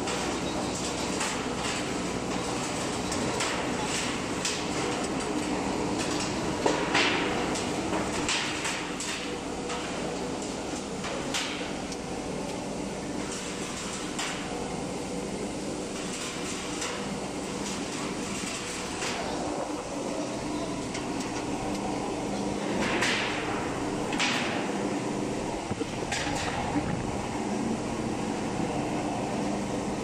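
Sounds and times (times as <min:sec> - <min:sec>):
machine motor hum: 0:12.0 - 0:30.0.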